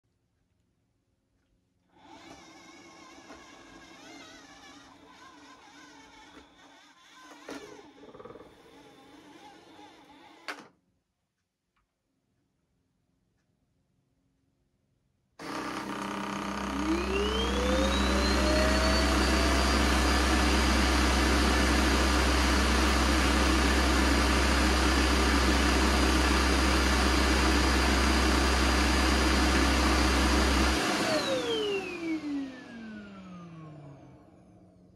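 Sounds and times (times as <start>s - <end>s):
suction motor whine: 15.4s - 34.8s.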